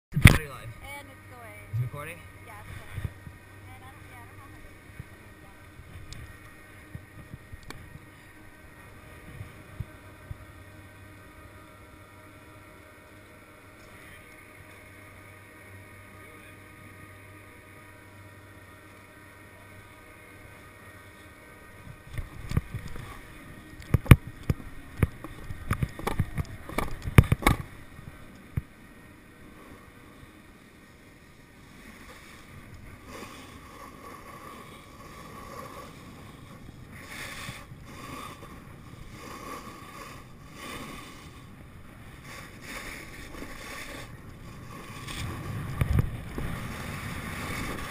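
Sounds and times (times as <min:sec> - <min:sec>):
quiet steady hum: 0:00.1 - 0:47.9
wind on microphone: 0:04.7 - 0:10.6, 0:41.3 - 0:47.9
snowboard scraping over snow: 0:31.6 - 0:47.9.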